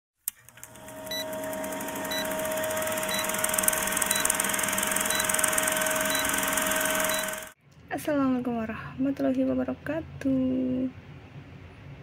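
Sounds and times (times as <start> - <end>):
film projector whirring and clattering: 0.2 - 7.6
short high beeps: 4.0 - 4.4, 5.0 - 7.4.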